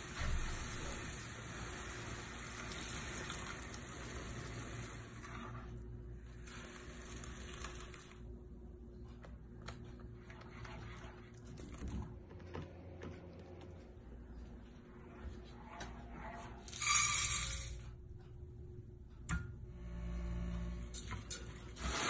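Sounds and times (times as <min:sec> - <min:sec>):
sizzling hiss from pan: 0:00.0 - 0:05.3.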